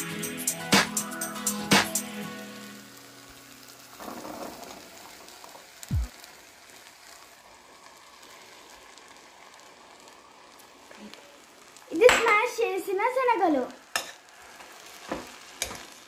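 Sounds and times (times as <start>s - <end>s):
dull low thump: 5.9s - 6.1s.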